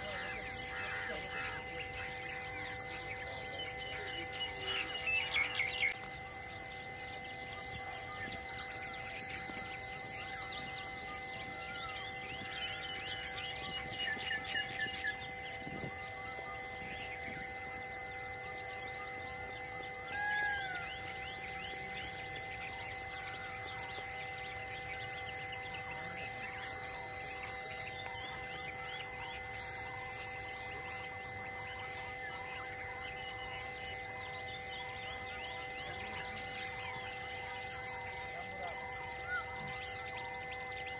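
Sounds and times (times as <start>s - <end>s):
bird repeating rising chirp: 0.0s - 17.5s
birds chirping and calling: 0.0s - 17.5s, 19.8s - 40.9s
high insect buzz: 0.0s - 40.9s
steady hum: 0.0s - 40.9s.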